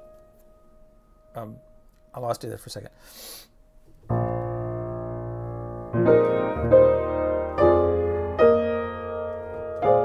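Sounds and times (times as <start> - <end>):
upright piano jazz chords: 4.0 - 10.0.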